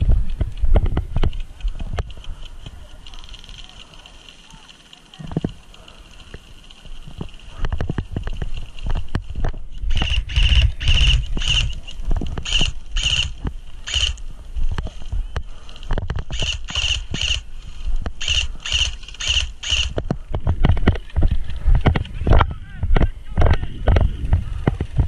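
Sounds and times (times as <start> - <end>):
footsteps on dirt and dry grass: 0.0 - 25.0.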